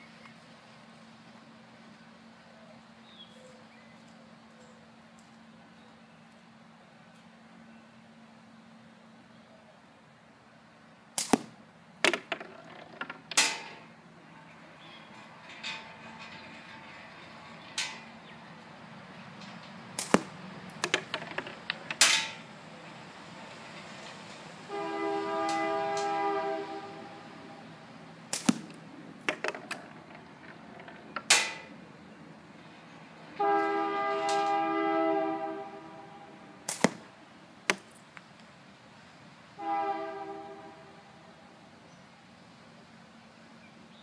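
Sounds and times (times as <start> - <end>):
steel balls striking wooden box: 11.2 - 13.9, 20.0 - 22.4, 28.3 - 31.7, 36.7 - 37.1
small rattles: 12.0 - 18.4, 19.1 - 22.5, 28.4 - 31.8
horn sounding a chord: 24.7 - 27.6, 33.4 - 36.5.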